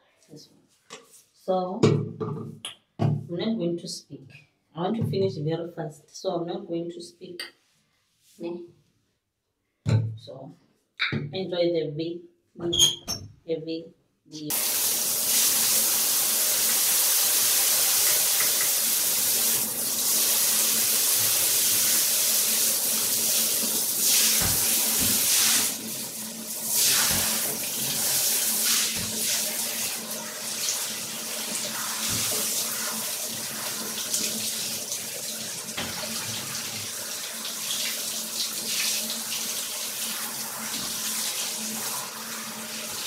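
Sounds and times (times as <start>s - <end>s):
shower spray splashing into tub: 14.5s - 37.0s.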